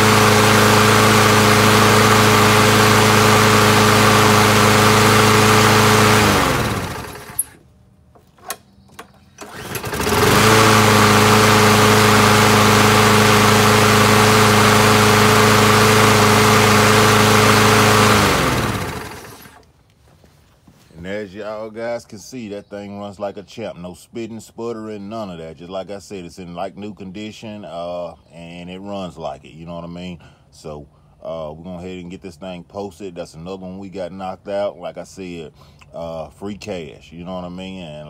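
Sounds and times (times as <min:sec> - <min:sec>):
engine winding down: 0:00.0 - 0:07.6, 0:09.3 - 0:19.7
lawn mower engine running: 0:00.0 - 0:07.6, 0:08.2 - 0:19.7.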